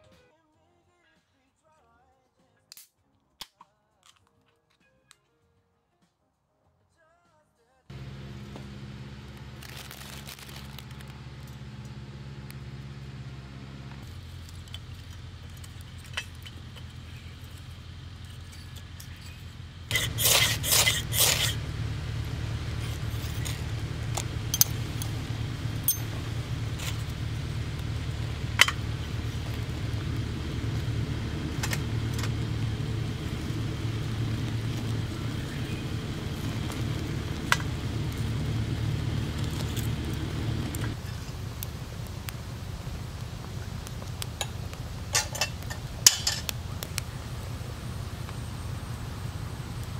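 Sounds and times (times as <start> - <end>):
burning sticks crackling: 7.9 - 49.9
fire lighting snaps: 8.4 - 13.0, 19.9 - 49.9
low rush of flame: 19.2 - 49.9.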